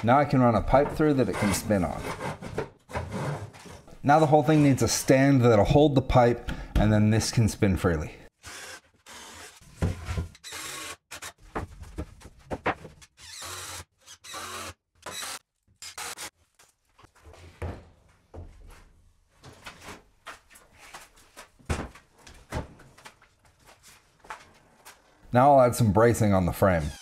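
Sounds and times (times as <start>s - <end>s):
timber knocks and clunks: 11.5s - 13.0s.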